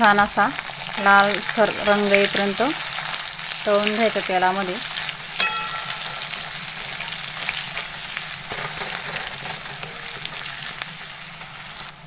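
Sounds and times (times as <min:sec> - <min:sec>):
onions sizzling in hot oil: 0:00.0 - 0:12.0
spatula scraping a pan: 0:06.3 - 0:11.9.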